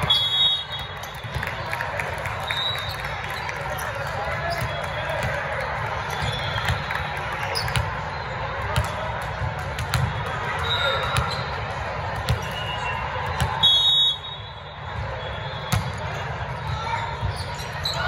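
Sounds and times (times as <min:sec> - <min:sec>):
referee's whistle blast: 0:00.0 - 0:01.2, 0:13.6 - 0:15.9
crowd hubbub in echoing hall: 0:00.0 - 0:18.0.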